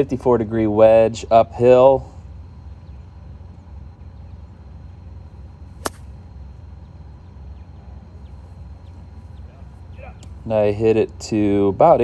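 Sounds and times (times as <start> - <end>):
golf club striking ball: 5.8 - 6.2.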